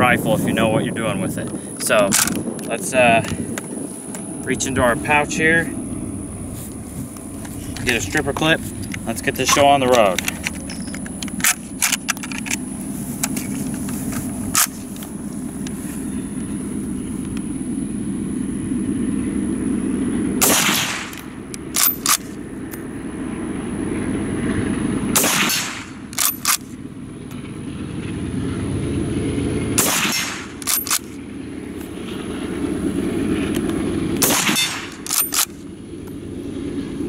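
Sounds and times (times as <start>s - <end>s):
rifle bolt clicks: 2.1s - 2.7s, 8.9s - 12.6s, 21.1s - 22.3s, 26.1s - 26.7s, 30.6s - 31.2s, 34.8s - 35.6s
rifle shots: 20.4s - 22.3s, 25.2s - 26.7s, 29.8s - 31.2s, 34.2s - 35.6s.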